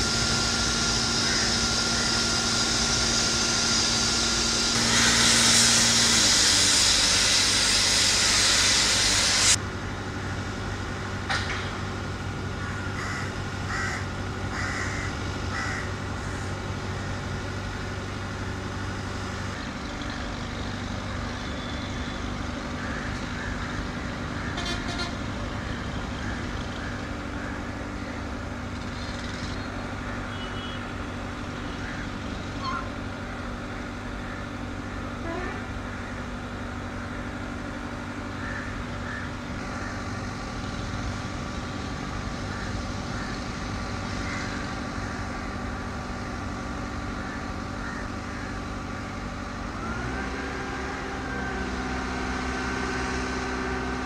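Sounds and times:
low engine hum: 0.0 - 54.0
crows cawing: 1.2 - 2.2, 12.6 - 16.4, 22.8 - 24.6, 31.8 - 32.2, 38.3 - 40.2, 42.4 - 45.3, 47.1 - 48.6.

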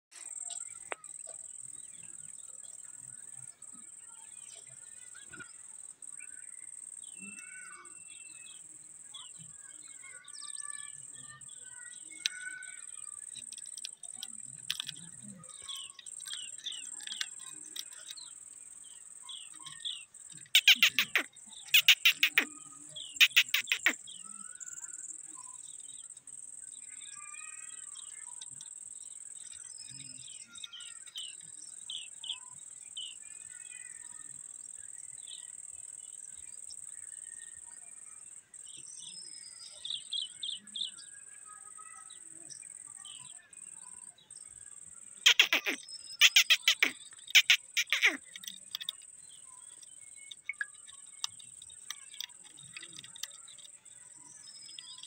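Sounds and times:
parakeets screeching: 20.4 - 24.0, 45.2 - 49.0
short high chirps: 23.2 - 24.0, 45.3 - 48.2.

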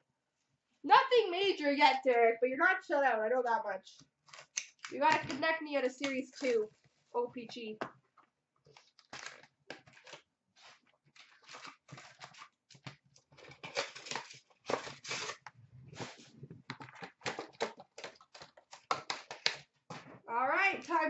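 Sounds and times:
pack wrappers tearing: 4.2 - 5.0, 8.7 - 15.4, 16.8 - 19.6.

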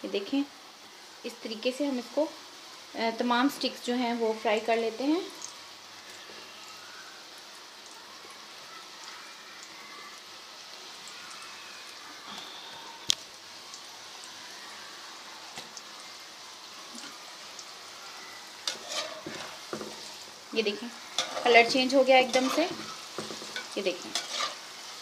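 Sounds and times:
dough deep-frying sizzle: 0.0 - 25.0
oil crackles and pops: 5.2 - 25.0.

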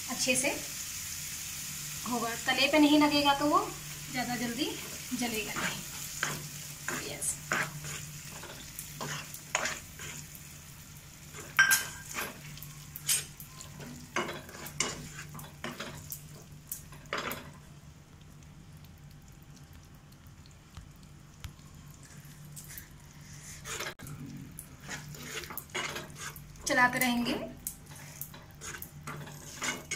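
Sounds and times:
light sizzle: 0.0 - 29.9
ladle scraping a pan: 5.5 - 10.3, 13.0 - 16.0, 23.4 - 24.0, 24.8 - 26.4, 27.9 - 29.9.

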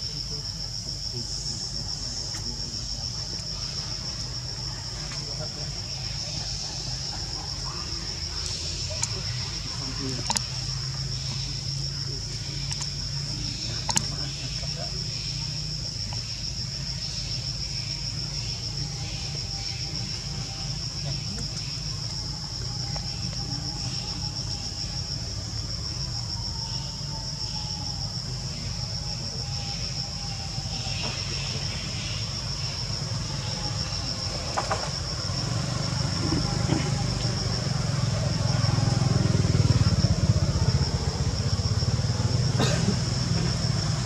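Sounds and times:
high-pitched insect drone: 0.0 - 44.0
low motor engine rumble: 27.2 - 44.0.

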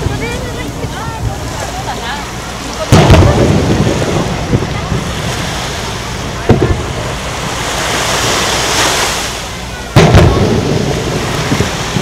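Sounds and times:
firework hiss: 2.4 - 12.0
smaller firework bang: 2.9 - 5.1, 6.4 - 7.0, 9.9 - 12.0
firework shells booming: 2.9 - 7.6, 9.9 - 12.0.

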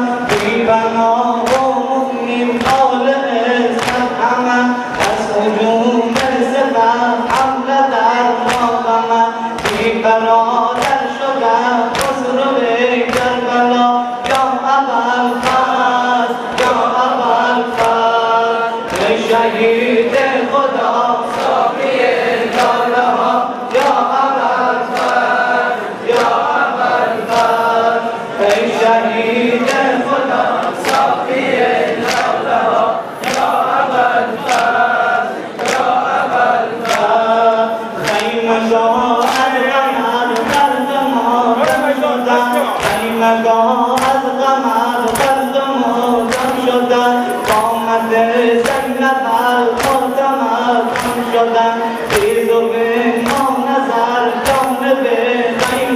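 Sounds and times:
men chanting a lament: 0.0 - 55.9
hands slapping chests: 0.3 - 0.6, 1.4 - 1.7, 3.7 - 4.1, 4.9 - 5.2, 7.3 - 7.6, 8.4 - 8.8, 9.6 - 10.0, 10.8 - 11.1, 11.9 - 12.2, 15.4 - 15.9, 16.5 - 16.9, 17.8 - 18.1, 23.7 - 24.1, 24.9 - 25.3, 26.1 - 26.5, 27.2 - 27.6, 30.6 - 31.2, 31.9 - 32.4, 33.2 - 33.7, 34.4 - 34.8, 35.6 - 36.2, 36.8 - 37.2, 38.0 - 38.4, 39.2 - 39.6, 41.6 - 43.2, 43.9 - 44.3, 45.0 - 45.5, 46.1 - 47.8, 48.6 - 50.2, 50.9 - 51.4, 52.0 - 52.5, 53.2 - 53.6
chest beating slaps: 4.9 - 5.2, 9.6 - 10.0, 42.5 - 43.2, 50.9 - 51.3, 52.1 - 52.5.

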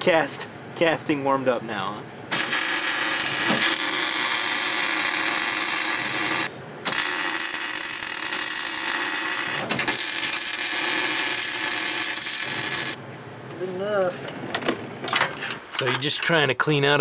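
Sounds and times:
electric arc welding crackling: 2.3 - 13.0.

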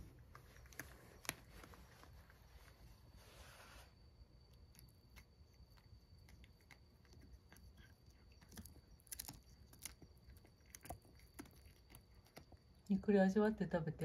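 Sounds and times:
cat crunching dried fish: 4.2 - 12.9.

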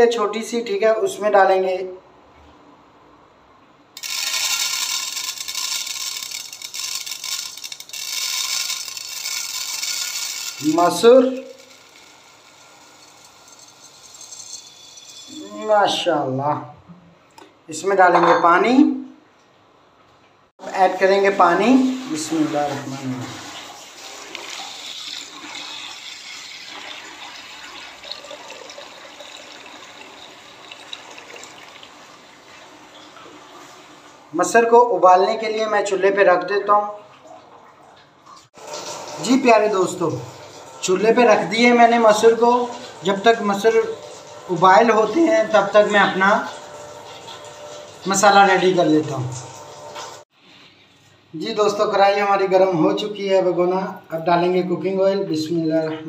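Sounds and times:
lentils pattering onto metal pot: 4.0 - 15.3
water pouring into a steel pot: 4.0 - 15.5, 21.8 - 32.7, 38.6 - 50.2.

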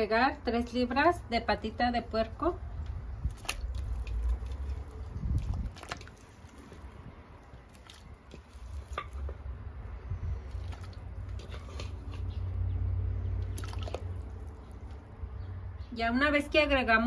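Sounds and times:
small wet splashes: 3.2 - 9.4, 10.4 - 12.0, 13.4 - 15.0.

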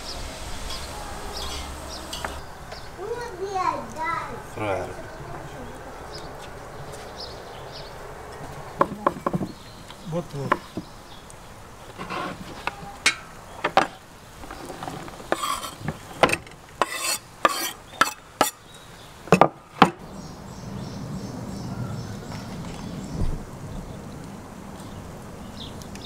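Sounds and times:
blade scraping board: 11.9 - 12.6, 14.4 - 18.6.

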